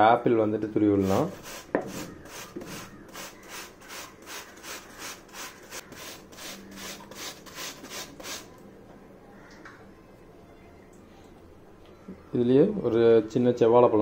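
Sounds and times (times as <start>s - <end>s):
apple grated on metal grater: 1.0s - 8.4s.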